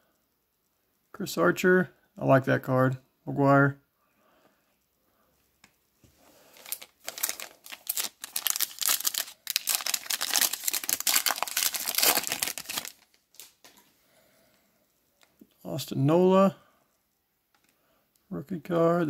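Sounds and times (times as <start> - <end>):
foil card pack crinkling: 6.4 - 13.8.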